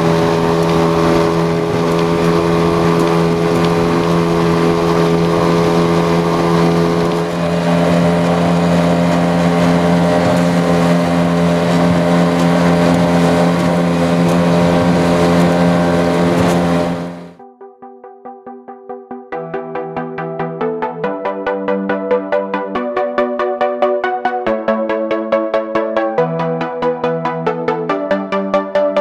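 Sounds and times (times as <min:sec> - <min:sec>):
outboard motor running: 0:00.0 - 0:17.4
pulsing electronic music: 0:17.1 - 0:29.0.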